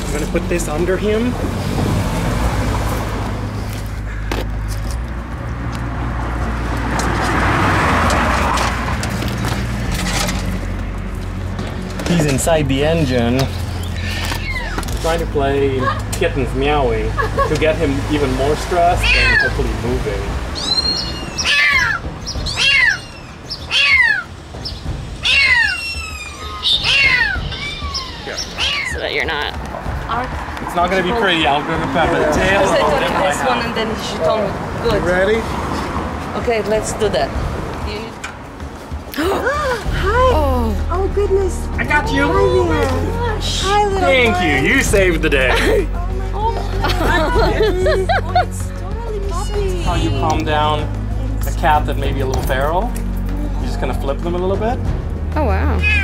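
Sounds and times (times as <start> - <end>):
car engine hum: 0.0 - 28.0, 28.9 - 56.0
car passing: 0.0 - 56.0
kitten meowing: 14.0 - 14.8, 19.0 - 19.6, 20.6 - 24.3, 25.2 - 29.1, 55.8 - 56.0.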